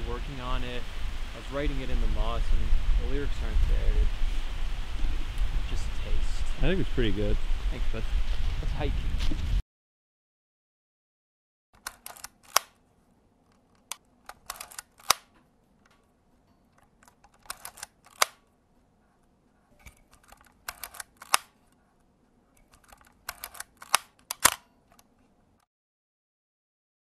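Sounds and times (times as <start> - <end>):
camera shutter clicking: 11.8 - 12.8, 13.9 - 15.3, 17.0 - 18.4, 20.1 - 21.6, 22.6 - 25.1.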